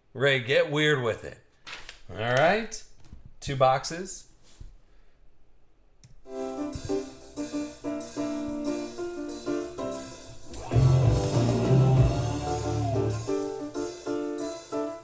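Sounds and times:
recorded music with heavy bass: 6.4s - 14.5s.

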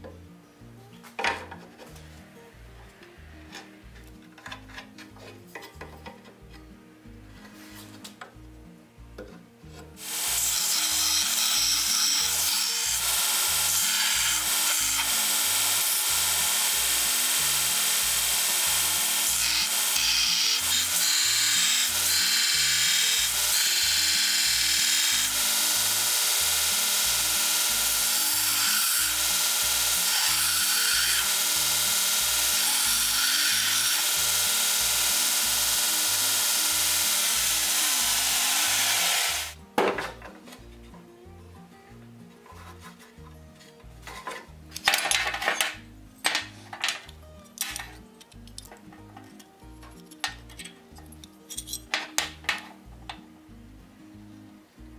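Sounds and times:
background music with steady beat: 0.0s - 10.5s, 34.2s - 54.9s
belt grinder grinding steel: 10.0s - 39.6s.

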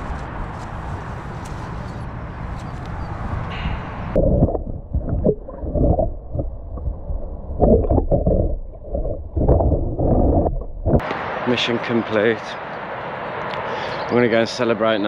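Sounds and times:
underwater water sloshing: 3.5s - 11.0s.

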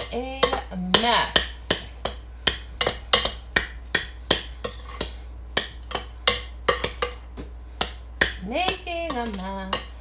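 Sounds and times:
spoon scraping glass bowl: 4.6s - 5.2s.

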